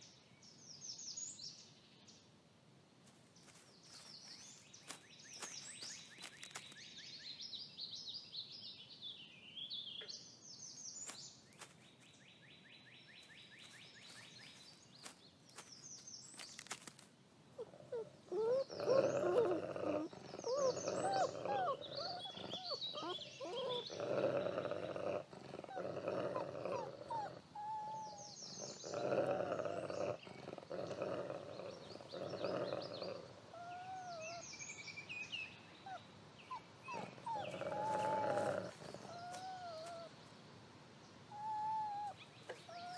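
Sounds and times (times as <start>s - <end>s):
wolf pup whining and squealing: 17.6s - 31.8s, 32.4s - 34.5s, 35.8s - 40.1s, 41.3s - 42.9s
wolf growling: 17.6s - 34.4s, 36.4s - 40.1s
birds chirping and trilling: 17.6s - 40.2s.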